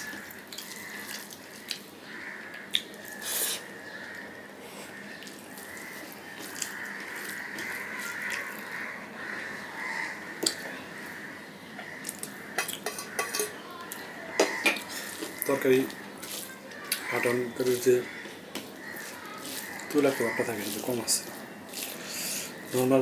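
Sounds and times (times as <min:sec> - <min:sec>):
chewing food: 0:00.0 - 0:03.6, 0:05.2 - 0:08.9, 0:13.8 - 0:22.9
hand mixing food on steel plate: 0:00.0 - 0:04.2, 0:04.8 - 0:23.0.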